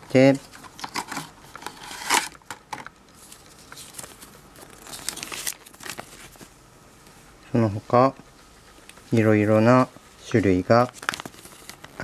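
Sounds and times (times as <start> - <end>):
paper rustling and crinkling: 0.4 - 6.6, 10.2 - 12.0.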